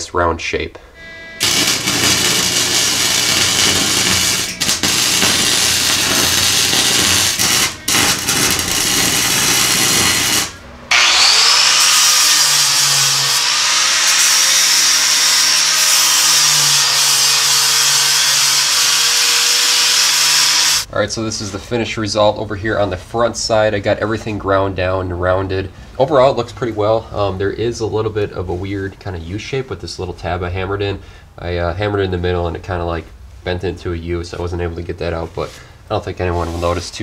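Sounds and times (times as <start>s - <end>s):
angle grinder whining: 1.0s - 20.9s
welder crackling and sizzling: 1.4s - 20.9s.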